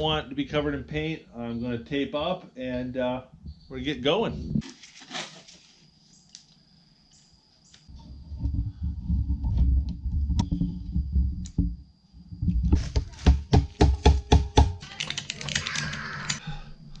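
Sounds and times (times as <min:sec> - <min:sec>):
tape clicks and rustles: 0:14.8 - 0:16.4.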